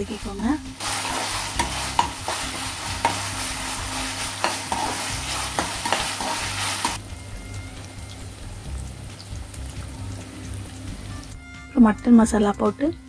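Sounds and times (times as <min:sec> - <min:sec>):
food sizzling in hot oil: 0:00.0 - 0:13.0
metal spatula scraping pan: 0:00.8 - 0:07.0.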